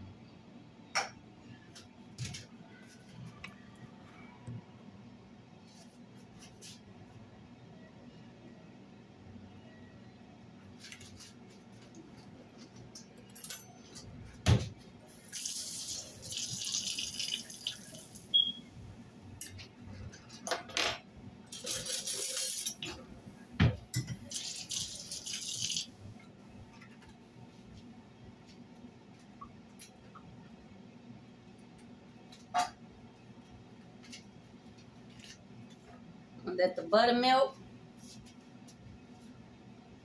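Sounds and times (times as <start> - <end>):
kitchen tap water running: 15.1 - 18.4, 24.2 - 25.9.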